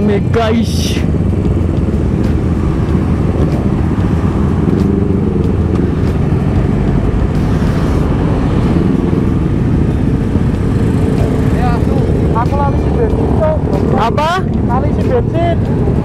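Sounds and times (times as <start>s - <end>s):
motorcycle engine running: 0.0s - 16.0s
motorcycles and cars passing: 0.0s - 16.0s.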